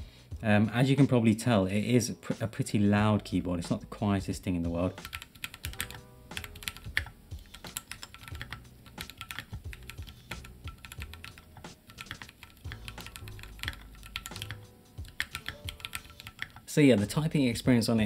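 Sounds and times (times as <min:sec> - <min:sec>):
mechanical keyboard typing: 0:05.0 - 0:16.7.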